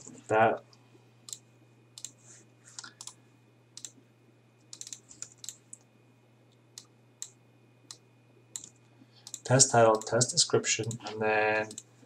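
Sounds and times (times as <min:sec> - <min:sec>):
typing on computer keyboard: 0:04.7 - 0:05.6, 0:08.6 - 0:10.1.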